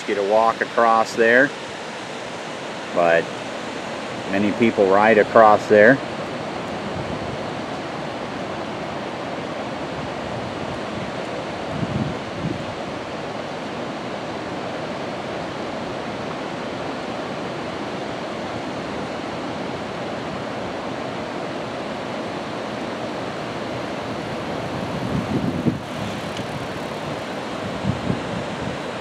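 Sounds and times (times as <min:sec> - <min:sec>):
water rushing over dam: 0:00.0 - 0:29.0
wind buffeting microphone: 0:06.5 - 0:13.1, 0:23.8 - 0:29.0.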